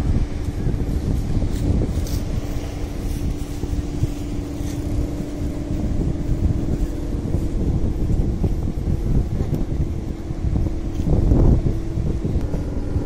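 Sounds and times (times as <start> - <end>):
kite hummer droning: 0.0 - 13.0
wind buffeting microphone: 0.0 - 13.0.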